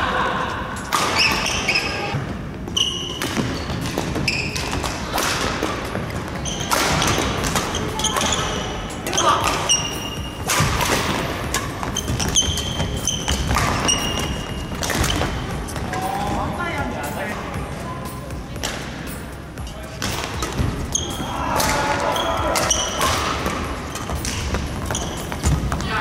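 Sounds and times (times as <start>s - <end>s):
rackets hitting shuttlecock: 0.9s - 1.9s, 2.8s - 16.1s, 20.0s - 25.8s
sneakers squeaking on wooden floor: 1.1s - 5.2s, 5.8s - 16.1s, 18.5s - 26.0s.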